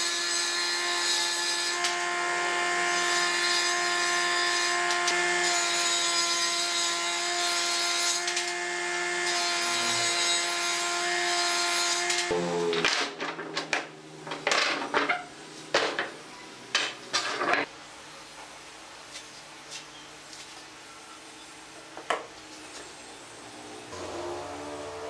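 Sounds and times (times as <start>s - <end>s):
woodworking machine hum: 1.8s - 3.4s, 8.2s - 15.0s, 23.1s - 25.0s.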